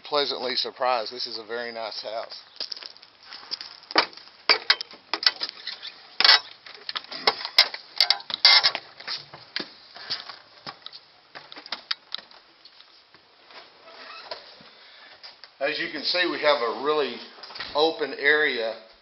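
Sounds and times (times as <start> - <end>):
footsteps: 2.2 - 4.5, 6.3 - 15.6, 16.3 - 18.0.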